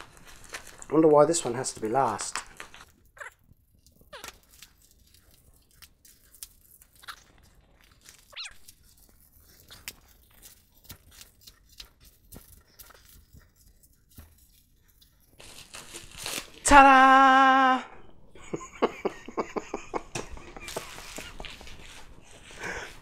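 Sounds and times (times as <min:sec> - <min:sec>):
wrapping paper crinkling and tearing: 0:00.0 - 0:17.4, 0:20.1 - 0:23.0.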